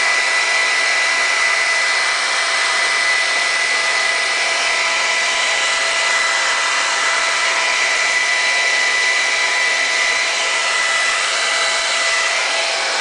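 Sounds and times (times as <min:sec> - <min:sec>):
hair dryer running: 0:00.0 - 0:13.0.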